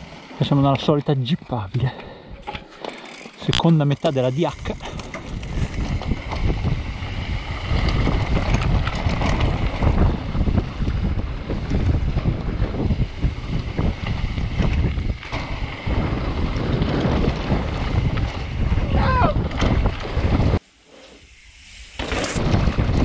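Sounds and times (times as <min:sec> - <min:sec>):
tyres rolling over dirt trail: 0:00.0 - 0:23.0
bike knocks and rattles: 0:00.5 - 0:20.6, 0:22.0 - 0:23.0
wind buffeting microphone: 0:03.9 - 0:20.6, 0:22.3 - 0:23.0.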